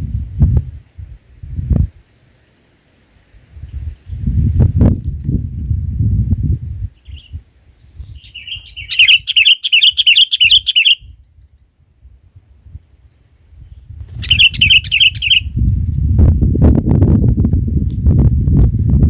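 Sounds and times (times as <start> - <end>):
high insect whine: 0.0 - 19.0
bulbul chattering call: 8.2 - 11.1, 14.2 - 15.5.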